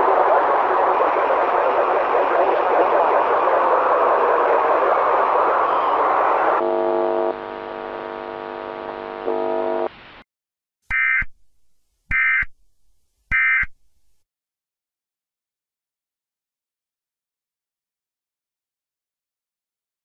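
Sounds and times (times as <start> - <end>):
harsh buzzing tone: 6.3 - 10.0.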